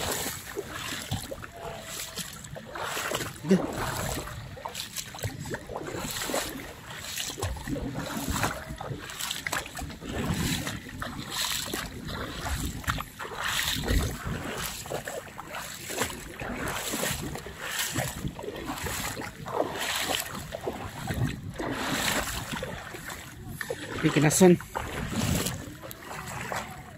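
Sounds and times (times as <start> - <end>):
sea water washing: 0.0 - 26.9
wind gusting over microphone: 9.7 - 15.0, 16.4 - 26.6.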